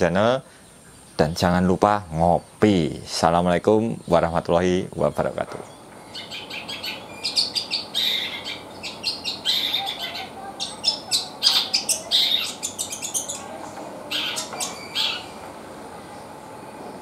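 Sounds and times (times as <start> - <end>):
bird singing fast chattering notes: 5.7 - 15.4.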